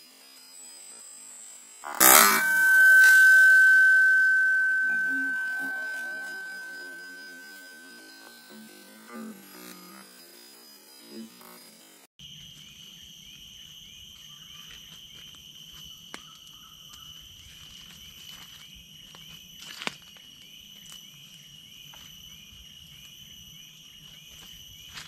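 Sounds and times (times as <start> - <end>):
insects calling at high pitch: 0.0 - 25.0
short insect chirp: 5.6 - 25.0.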